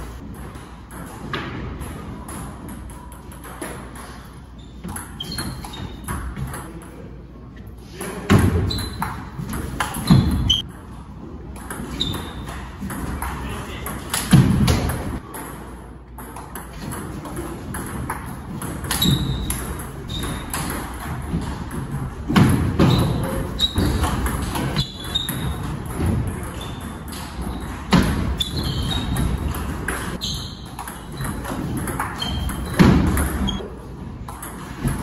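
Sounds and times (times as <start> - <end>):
ping pong ball clicking off bats: 29.0 - 33.6.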